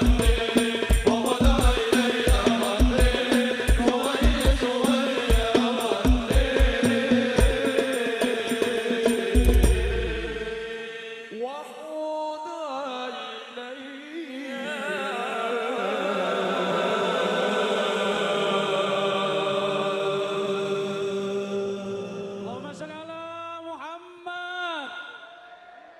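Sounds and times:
low drum boom: 0:09.4 - 0:10.6.

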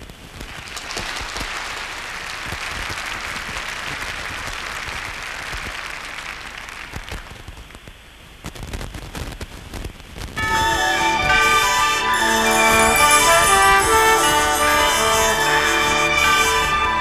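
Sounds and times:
audience applause: 0:00.3 - 0:07.5.

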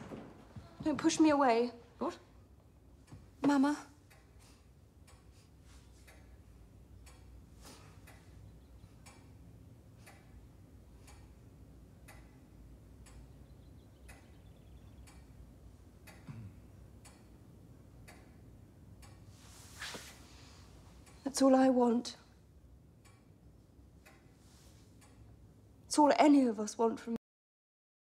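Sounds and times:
clock ticking: 0:02.6 - 0:19.3, 0:22.8 - 0:24.4.

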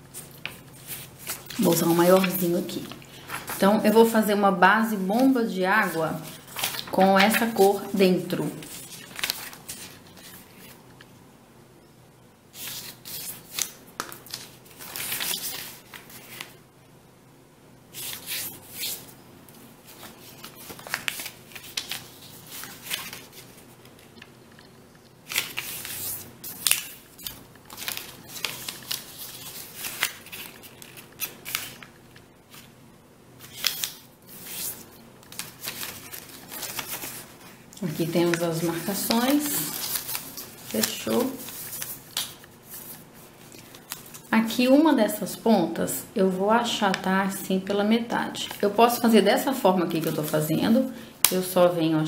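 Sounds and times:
paper rustling and creasing: 0:00.1 - 0:04.3, 0:04.9 - 0:11.0, 0:12.6 - 0:16.6, 0:18.0 - 0:32.8, 0:33.4 - 0:44.3.

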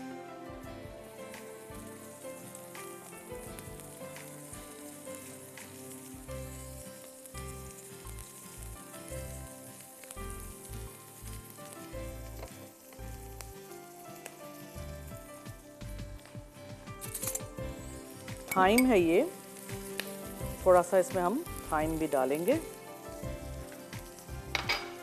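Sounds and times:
onion and garlic sizzling in oil: 0:00.0 - 0:25.0
spatula stirring in wok: 0:16.8 - 0:25.0.

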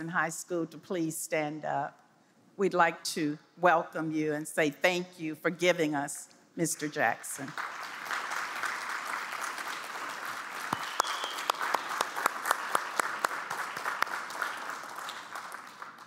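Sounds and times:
audience applauding: 0:07.5 - 0:16.0
loud individual claps: 0:07.5 - 0:16.0.

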